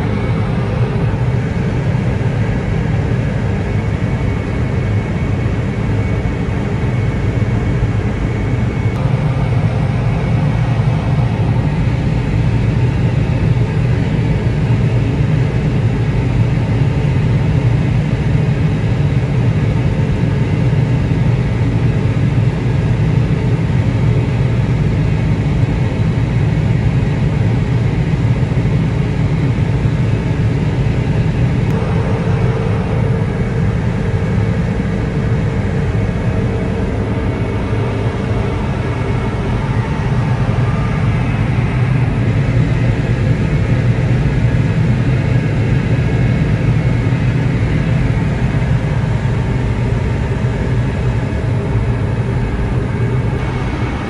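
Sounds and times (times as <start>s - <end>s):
heavy engine rumble: 29.3s - 44.6s, 45.5s - 54.0s.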